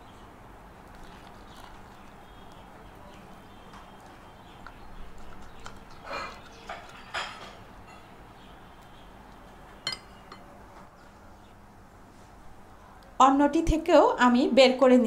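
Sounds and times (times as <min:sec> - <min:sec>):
spoon scraping fruit shell: 0:00.9 - 0:10.5
spoon clinking on plate: 0:06.3 - 0:08.1, 0:09.8 - 0:10.5.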